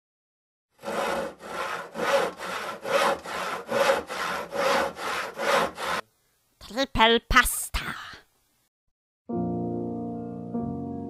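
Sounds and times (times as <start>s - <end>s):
hand tool rasping on wood: 0.8s - 6.0s.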